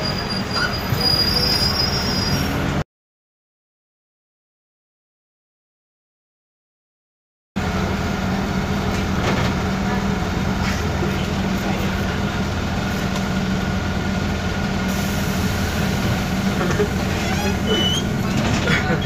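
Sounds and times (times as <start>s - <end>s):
bus engine and road drone: 0.0s - 2.8s, 7.6s - 19.0s.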